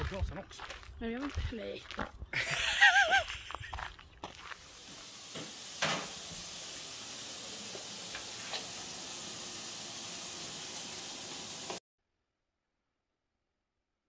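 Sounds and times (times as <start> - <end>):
food sizzling in a frying pan: 4.6 - 11.8.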